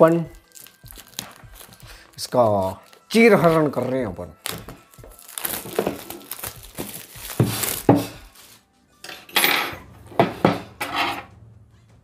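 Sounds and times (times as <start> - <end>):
cardboard box being torn open: 4.4 - 8.0.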